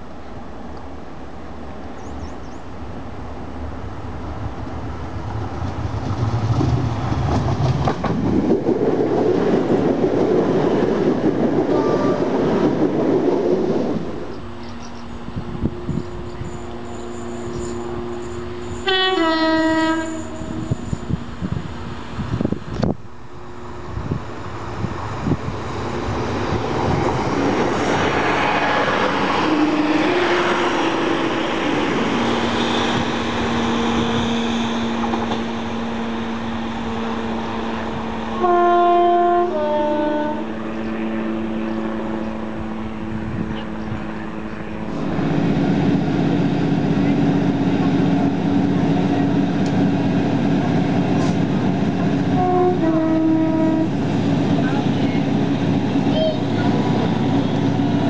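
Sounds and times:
diesel train drone inside carriage: 0.0 - 58.0
diesel train passing: 0.0 - 58.0
two-tone train horn: 11.7 - 12.4, 15.9 - 21.2, 29.4 - 30.9, 38.4 - 40.9, 52.3 - 54.0.

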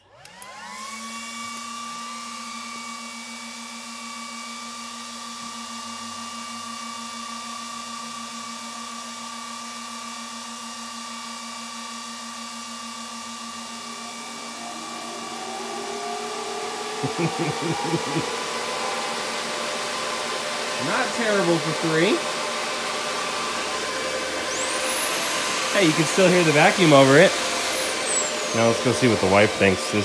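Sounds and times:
cooling fans whirring: 11.6 - 30.0
motor starting up: 12.4 - 30.0.

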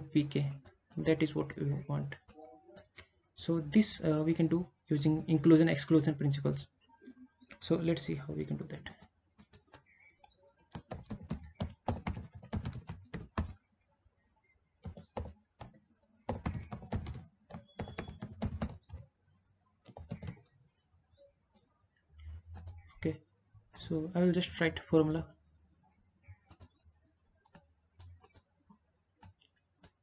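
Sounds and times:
keyboard typing: 8.3 - 13.7, 14.8 - 19.2, 19.8 - 20.6, 21.4 - 25.2, 25.9 - 30.0.

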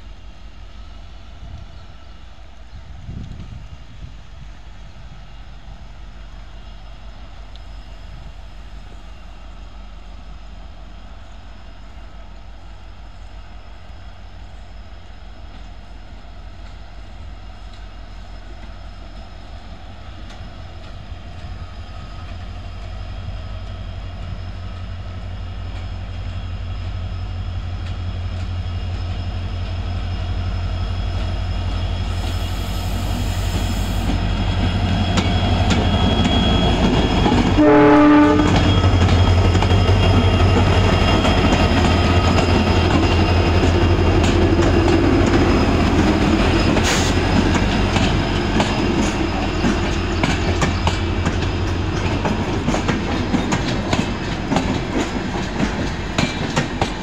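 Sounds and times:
diesel locomotive approaching: 0.0 - 57.0
train horn blast: 37.2 - 39.2.

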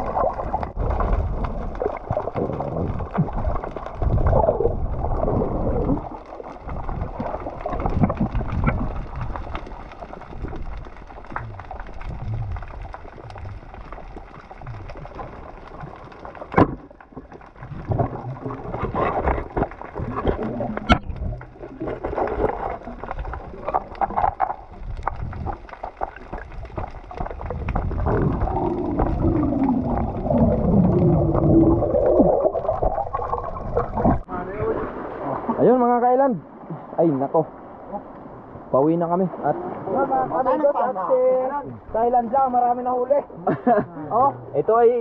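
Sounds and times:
muffled underwater noise: 0.0 - 16.5.

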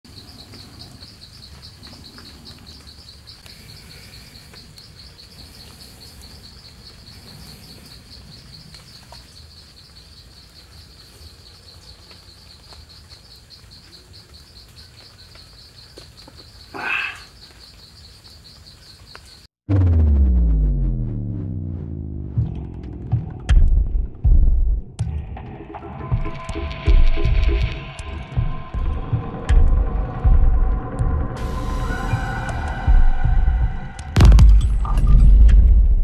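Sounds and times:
insects chirring: 0.1 - 19.5
faint low rumble: 19.7 - 36.0.

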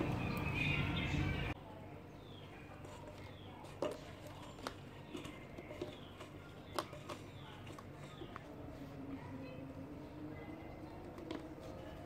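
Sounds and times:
plastic bottles clicking and knocking: 3.6 - 8.4.

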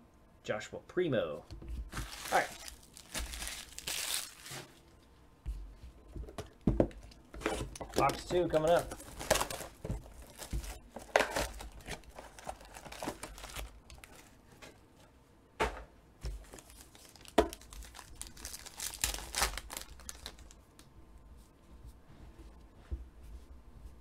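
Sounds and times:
plastic shrink-wrap crinkling and tearing: 1.9 - 4.7, 7.1 - 14.2, 16.4 - 20.8
foil pack tearing open: 2.0 - 4.6, 16.6 - 20.6.

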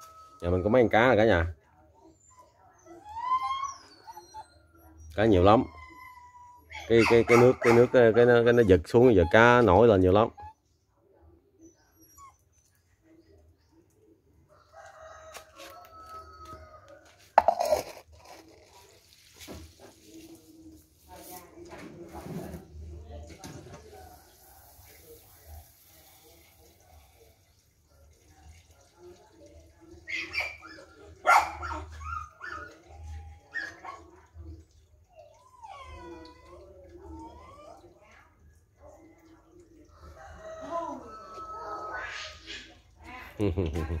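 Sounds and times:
dogs barking and yipping: 6.6 - 10.6, 30.0 - 38.0
rooster crowing: 14.7 - 17.0.

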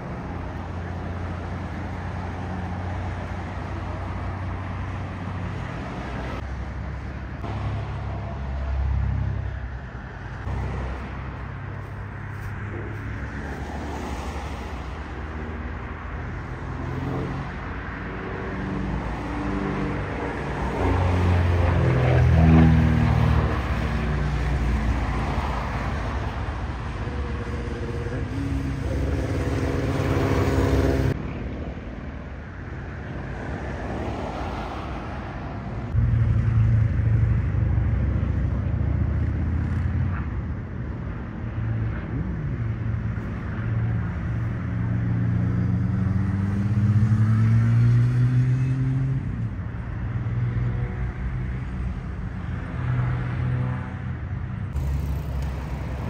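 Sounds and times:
propeller aircraft engines droning: 15.0 - 44.8.

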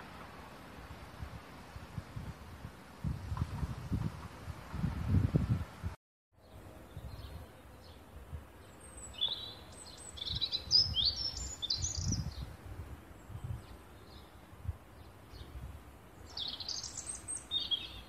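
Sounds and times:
wind rumble on microphone: 0.8 - 18.0
microphone handling noise: 3.1 - 5.6
songbird chirping and trilling: 6.4 - 15.6, 16.2 - 18.0.

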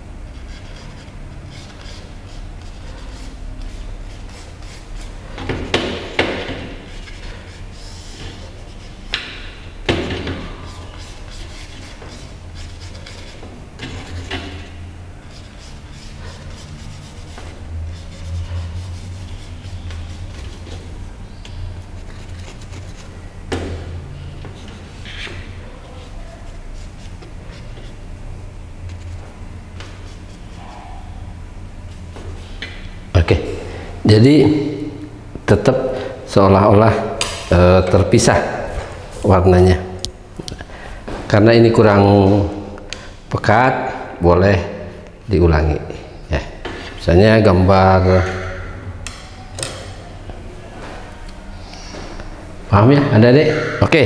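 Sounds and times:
steady low hum: 0.0 - 54.0
paintbrush rubbing on board: 0.4 - 9.1, 10.2 - 23.2, 24.4 - 28.1, 28.9 - 30.9
scratchy brush strokes: 10.5 - 23.2.

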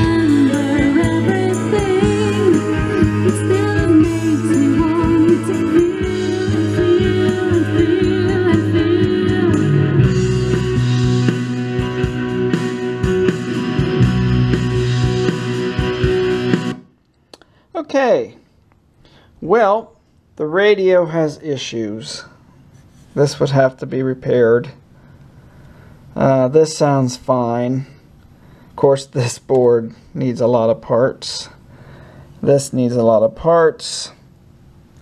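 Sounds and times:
song with singing and guitar: 0.0 - 16.8.

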